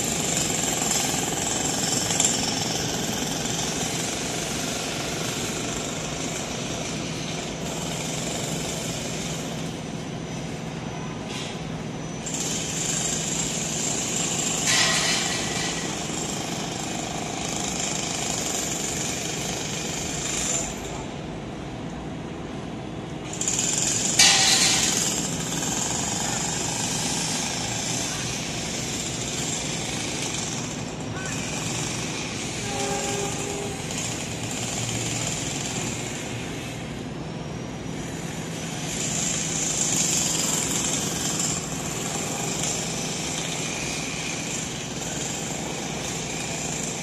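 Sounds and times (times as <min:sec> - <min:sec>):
jackhammer rattling: 0:23.3 - 0:32.0.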